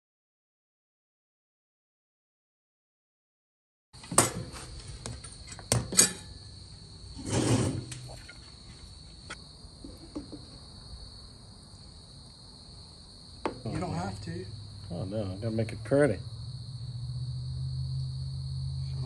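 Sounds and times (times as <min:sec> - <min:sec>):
crickets chirping: 0:04.0 - 0:19.0
cutlery scraping: 0:04.1 - 0:06.4
cutlery clinking on plates: 0:05.7 - 0:06.4.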